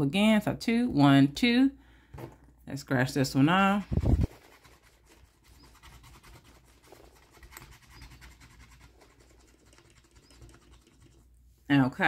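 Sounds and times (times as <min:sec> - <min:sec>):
scratch tool scratching paper sticker: 0:03.9 - 0:11.3.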